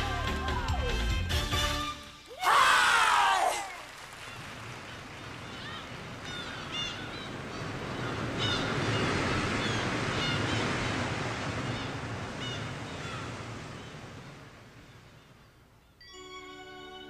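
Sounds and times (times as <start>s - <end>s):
audience applauding: 3.0s - 6.3s.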